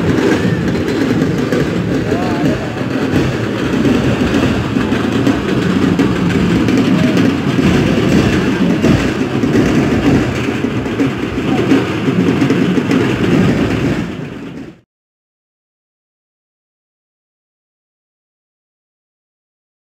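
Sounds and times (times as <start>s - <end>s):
huge crowd din: 0.0s - 14.8s.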